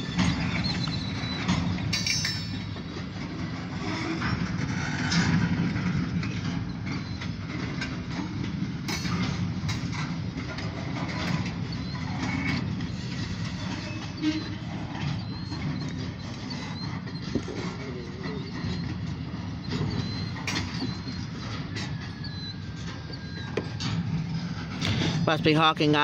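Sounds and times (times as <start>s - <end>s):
freight train rumbling: 0.0s - 26.0s
wheels and couplings clanking: 0.0s - 26.0s.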